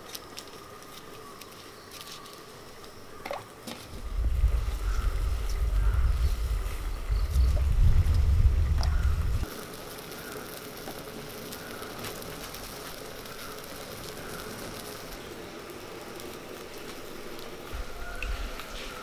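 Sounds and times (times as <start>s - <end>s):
faint fire snaps: 0.0s - 19.0s
wood fire crackling: 0.0s - 19.0s
low rumble: 3.9s - 9.5s.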